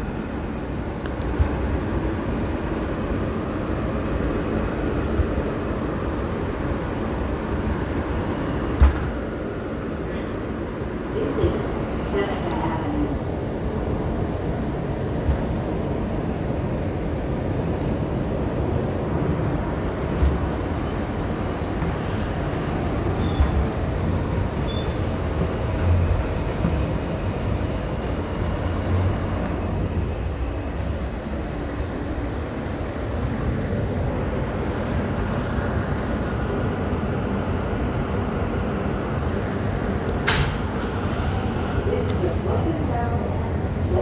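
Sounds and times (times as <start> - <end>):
subway train rumbling on rails: 0.0 - 44.0
high wheel squeals: 24.6 - 27.5.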